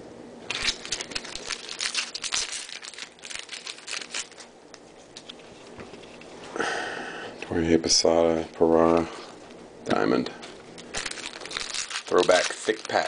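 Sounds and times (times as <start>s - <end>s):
foil wrapper crinkling and tearing: 0.5s - 4.5s, 10.8s - 13.0s
cards being handled: 0.5s - 6.5s, 10.4s - 13.0s.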